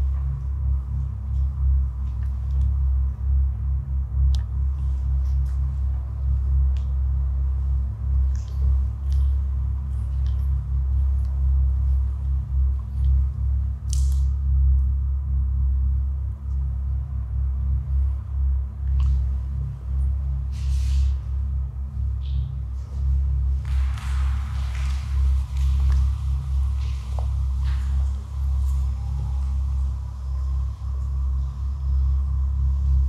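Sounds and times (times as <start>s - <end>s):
dark ambient drone music: 0.0s - 33.0s.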